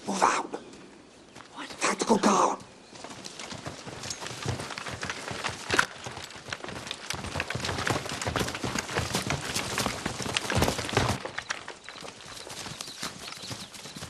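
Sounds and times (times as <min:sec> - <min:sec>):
horse hoofbeats over speakers: 0:03.0 - 0:14.0.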